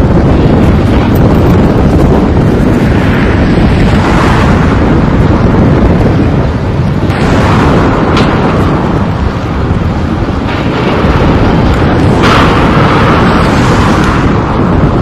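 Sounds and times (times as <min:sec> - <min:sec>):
wind buffeting microphone: 0:00.0 - 0:15.0
sharp crack: 0:07.0 - 0:15.0.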